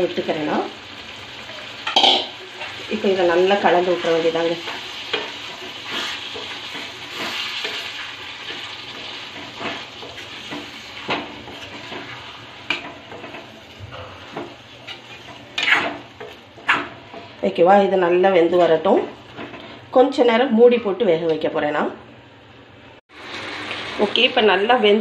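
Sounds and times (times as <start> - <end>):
food sizzling in a pan: 0.0 - 19.9, 23.1 - 25.0
metal spoon scraping a pan: 3.6 - 17.4.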